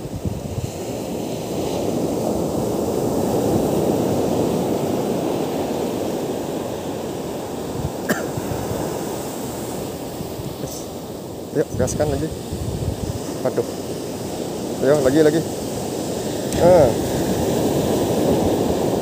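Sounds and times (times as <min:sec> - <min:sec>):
ocean surf breaking on beach: 0:00.0 - 0:19.0.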